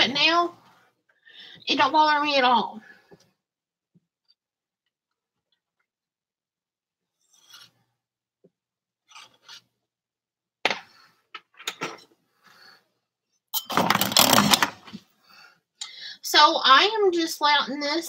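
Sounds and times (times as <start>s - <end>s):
spoon scraping a pot: 7.2s - 7.8s, 9.1s - 9.7s.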